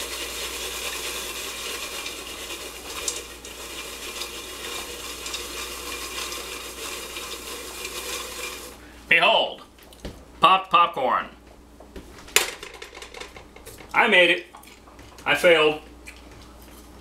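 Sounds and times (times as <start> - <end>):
popcorn kernels popping: 0.0 - 8.7, 12.4 - 14.0
pot shaken on a burner: 0.0 - 8.8, 12.4 - 14.0
hot oil sizzling in a pot: 0.0 - 8.9.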